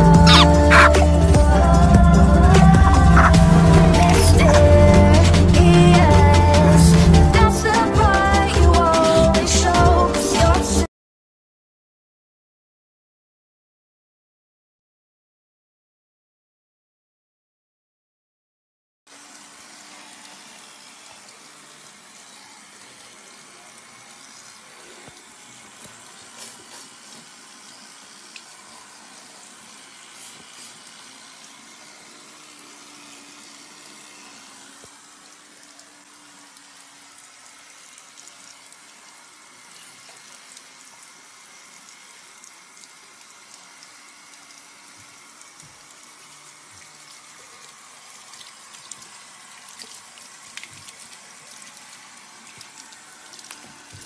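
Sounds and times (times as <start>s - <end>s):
tap water running into sink: 19.2s - 54.0s.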